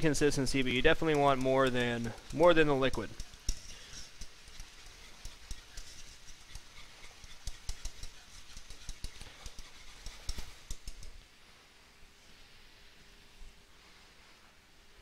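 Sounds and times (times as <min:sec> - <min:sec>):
light frying sizzle: 0:00.1 - 0:11.4
utensil tapping metal saucepan: 0:00.6 - 0:11.1.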